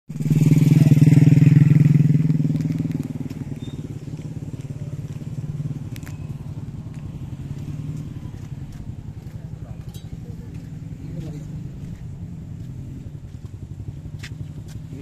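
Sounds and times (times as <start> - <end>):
small motorcycle engine running: 0.1 - 15.0.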